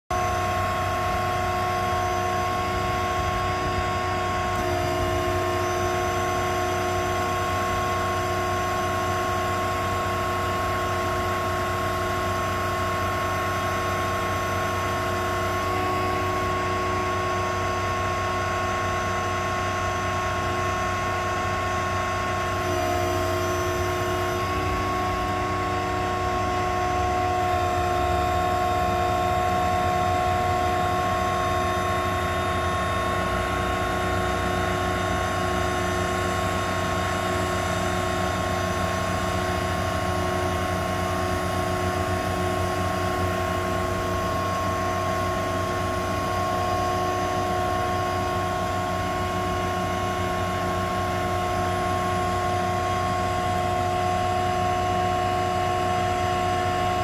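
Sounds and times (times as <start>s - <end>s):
crane mechanical whine: 0.1s - 57.0s.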